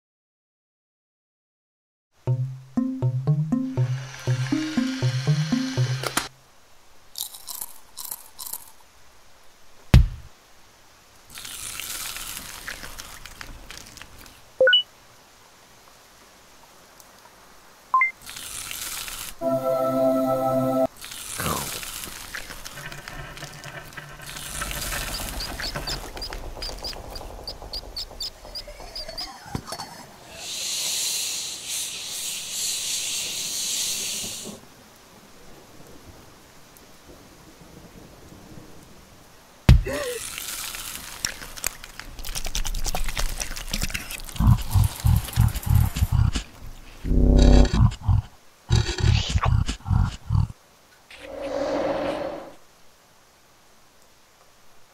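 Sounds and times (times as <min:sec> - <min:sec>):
short blips rising in pitch: 0:02.3 - 0:06.3, 0:14.6 - 0:14.8
high-pitched hiss: 0:03.6 - 0:06.3, 0:30.3 - 0:34.6
rustling hiss: 0:03.9 - 0:54.9
sharp thump: 0:09.9 - 0:10.3, 0:39.7 - 0:39.9.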